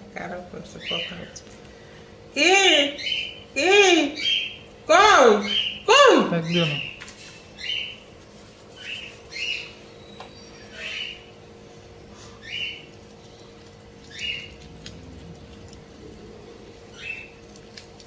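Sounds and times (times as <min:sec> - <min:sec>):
small bird calling: 0:02.6 - 0:08.1, 0:08.7 - 0:17.7.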